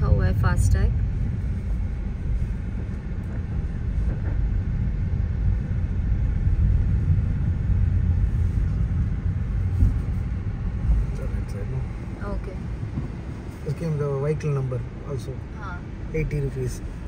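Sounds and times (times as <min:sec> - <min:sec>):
car engine and tyres rumbling: 0:00.0 - 0:17.0
low thump: 0:02.7 - 0:05.0, 0:09.7 - 0:10.2, 0:12.8 - 0:13.3.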